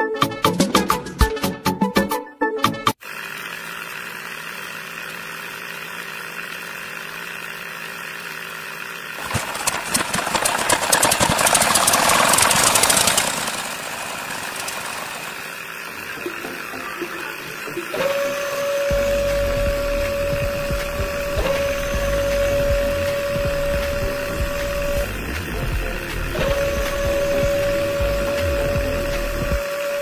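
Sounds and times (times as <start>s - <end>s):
small motor running: 3.0s - 30.0s
steady whine: 9.2s - 30.0s.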